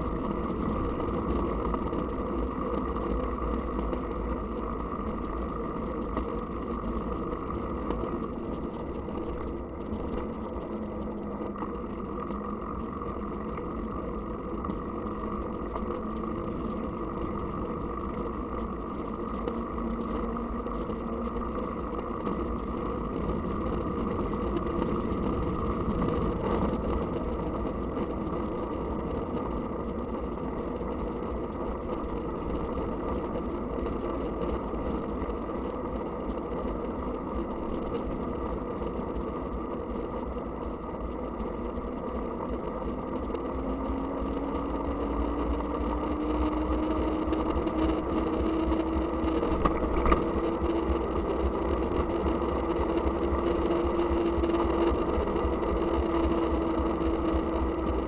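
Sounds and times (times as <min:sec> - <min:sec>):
bike tyre noise: 0:00.0 - 0:58.0
wind rumble on microphone: 0:00.0 - 0:58.0.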